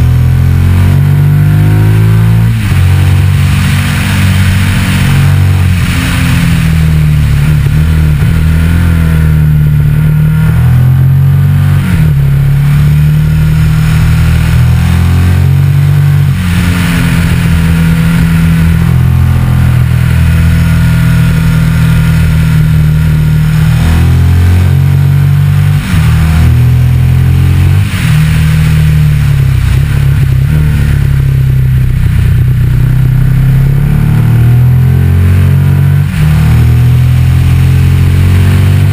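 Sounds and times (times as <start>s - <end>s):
motorcycle engine revving: 0.0s - 38.9s
wind and road noise: 0.0s - 38.9s.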